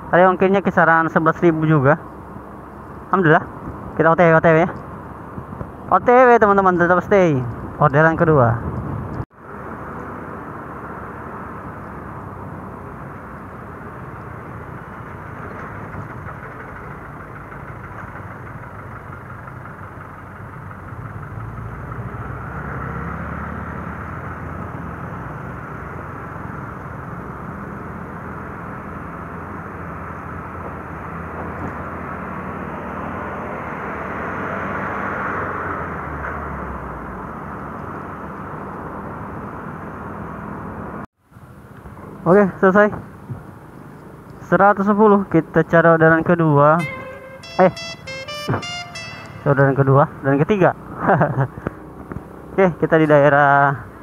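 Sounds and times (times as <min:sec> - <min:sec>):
scooter engine drone: 0:46.8 - 0:50.4.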